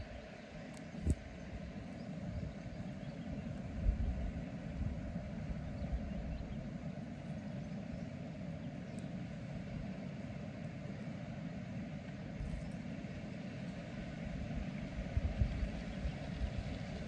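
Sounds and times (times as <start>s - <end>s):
wind buffeting microphone: 0.0s - 6.8s, 14.3s - 17.0s.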